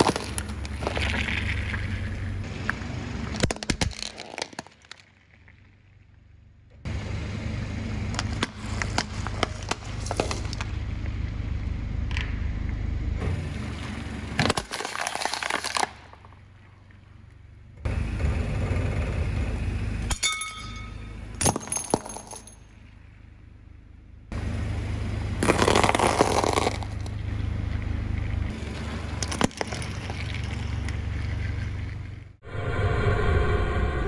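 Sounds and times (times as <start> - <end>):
tyre crushing objects: 0.0 - 2.0, 8.2 - 10.7, 25.4 - 27.2
car engine hum: 0.0 - 4.1, 5.2 - 14.8, 15.4 - 34.0
glass breaking: 14.4 - 16.3, 20.1 - 22.8.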